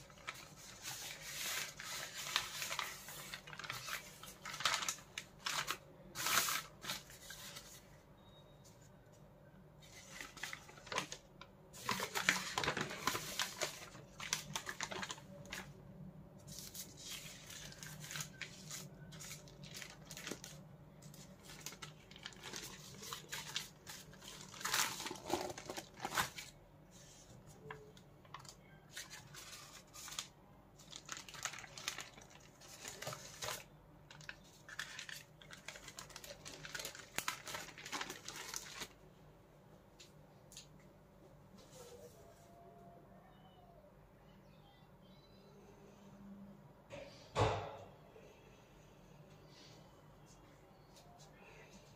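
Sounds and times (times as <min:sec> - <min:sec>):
paper wrapping crinkling: 0:00.0 - 0:07.9, 0:09.8 - 0:15.8, 0:16.4 - 0:39.0.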